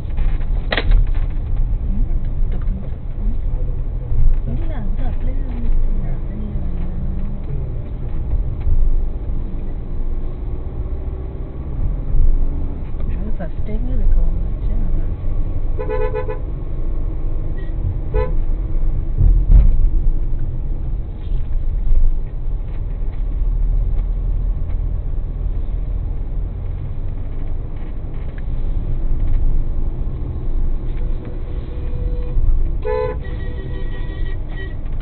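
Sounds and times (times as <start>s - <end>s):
low rumble of car driving: 0.0s - 35.0s
car horn honking: 15.8s - 16.5s, 17.6s - 18.4s, 31.6s - 34.9s.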